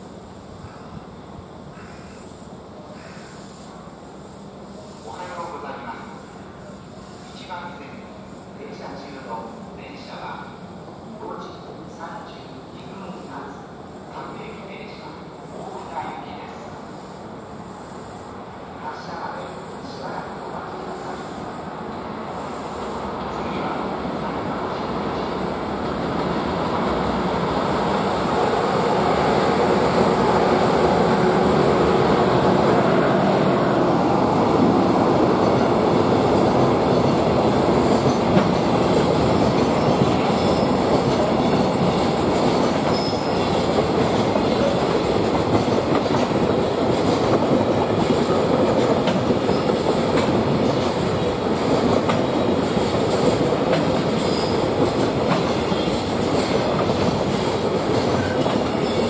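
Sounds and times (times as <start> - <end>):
freight train clattering over rails: 24.3 - 59.0.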